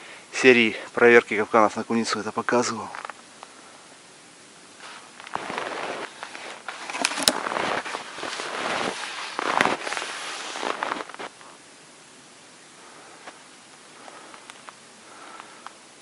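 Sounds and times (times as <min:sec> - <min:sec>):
skis crunching through snow: 0:04.8 - 0:11.6.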